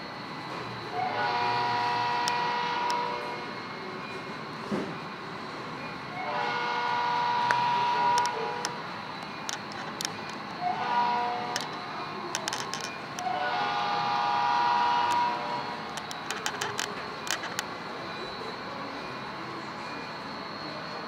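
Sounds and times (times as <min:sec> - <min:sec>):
model locomotive horn blasts: 0:00.9 - 0:03.6, 0:06.1 - 0:08.8, 0:10.6 - 0:11.8, 0:13.2 - 0:15.8.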